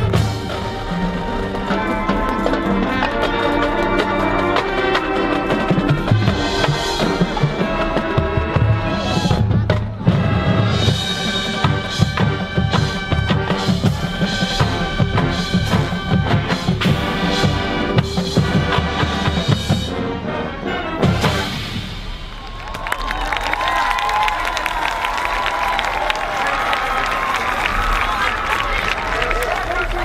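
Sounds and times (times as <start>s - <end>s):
wind chords: 0.0s - 22.4s
snare and bass drums: 4.6s - 20.0s, 21.0s - 22.6s.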